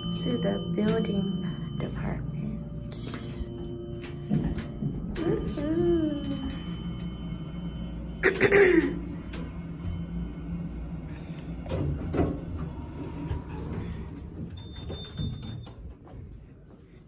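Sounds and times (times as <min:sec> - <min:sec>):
elevator clunk and rattle: 0:00.0 - 0:02.4, 0:03.0 - 0:16.4
elevator low hum: 0:00.0 - 0:17.0
sliding doors opening: 0:09.0 - 0:16.0.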